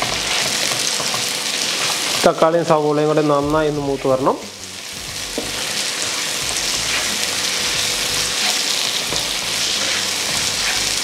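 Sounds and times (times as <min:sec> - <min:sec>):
onions sizzling in oil: 0:00.0 - 0:11.0
spatula knocking against pan: 0:09.1 - 0:09.4.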